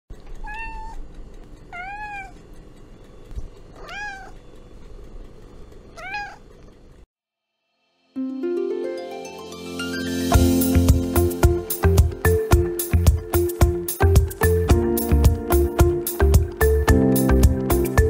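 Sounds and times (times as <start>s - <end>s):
cat meowing: 0.4s - 1.0s, 1.7s - 2.4s, 3.8s - 4.4s, 6.0s - 6.5s
plucked music: 8.2s - 18.0s.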